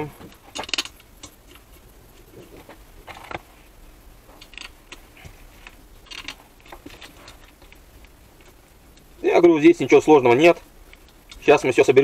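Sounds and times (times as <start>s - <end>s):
screws clicking and scraping: 0.3s - 2.3s, 4.3s - 9.2s, 10.7s - 11.6s.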